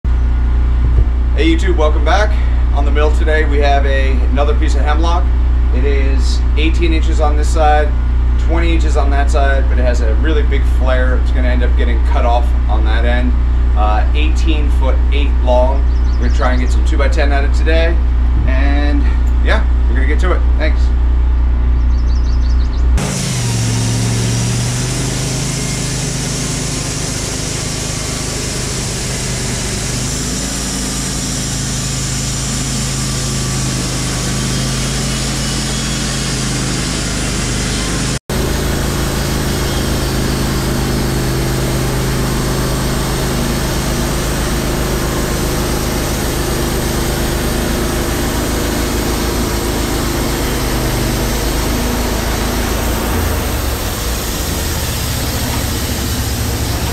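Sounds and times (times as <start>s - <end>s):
bandsaw sawing through log: 23.0s - 56.9s.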